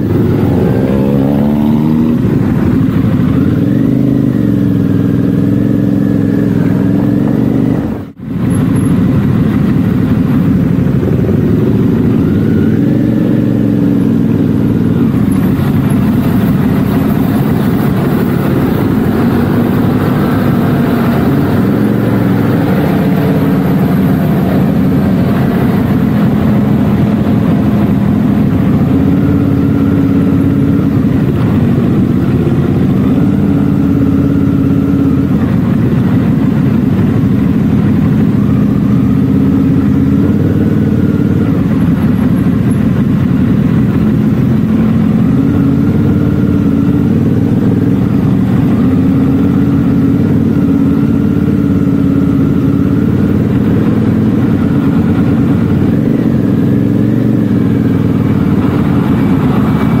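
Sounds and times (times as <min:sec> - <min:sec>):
motorcycle engine running: 0:00.0 - 1:00.0
road and wind noise: 0:00.0 - 1:00.0.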